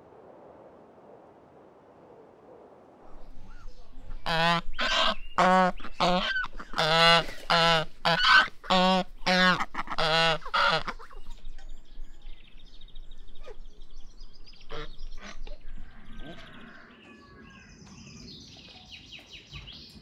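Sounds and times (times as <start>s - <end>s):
geese honking: 4.1s - 11.2s.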